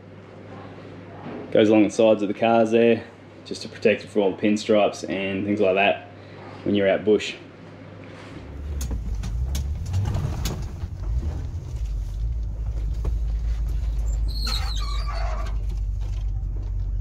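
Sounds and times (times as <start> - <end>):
vehicle cabin low rumble: 8.4 - 17.0
branch screeching along car side: 14.1 - 15.9.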